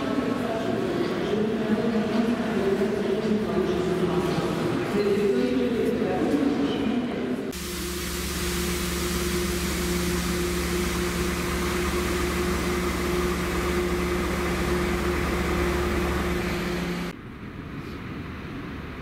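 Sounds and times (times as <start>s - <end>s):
fan hiss: 7.5s - 17.2s
two-note electrical drone: 7.6s - 17.1s.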